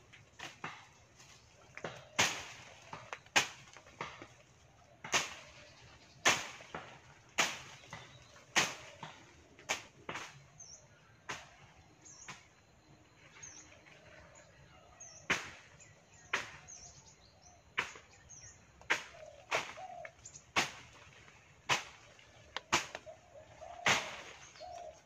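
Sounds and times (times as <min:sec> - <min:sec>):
machete chopping branches: 0:00.2 - 0:10.6, 0:11.3 - 0:12.5, 0:15.3 - 0:16.8, 0:17.8 - 0:23.2, 0:23.8 - 0:24.9
small birds chirping: 0:00.4 - 0:25.0.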